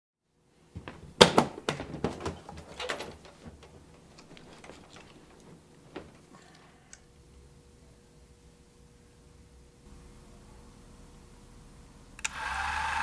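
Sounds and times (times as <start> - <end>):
handling knocks and rustles: 0.7 - 6.6.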